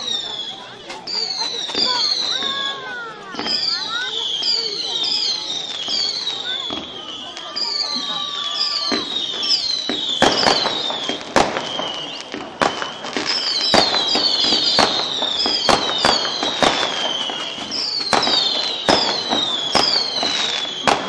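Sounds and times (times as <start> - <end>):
falling firework whistles: 0.0 - 21.0
firework shells bursting: 8.6 - 21.0.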